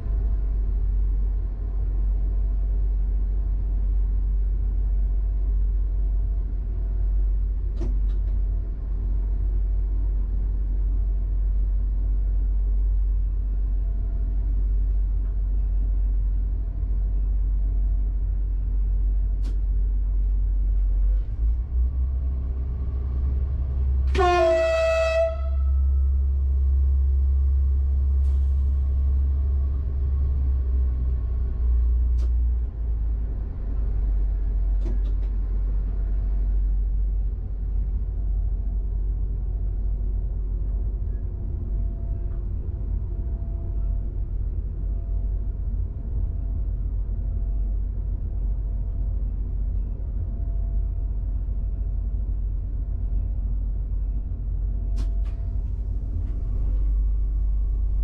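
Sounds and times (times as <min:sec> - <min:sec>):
railcar rumbling in tunnel: 0:00.0 - 0:58.0
train horn blast: 0:24.0 - 0:26.2.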